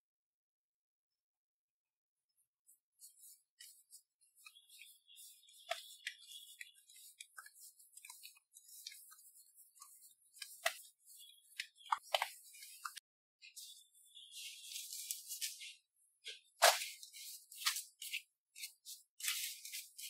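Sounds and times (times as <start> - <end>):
dough slapping on mat: 16.2 - 19.8.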